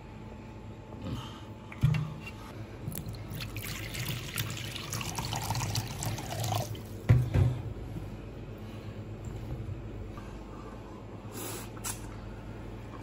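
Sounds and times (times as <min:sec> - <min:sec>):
water pouring into a wok: 0:03.4 - 0:06.9.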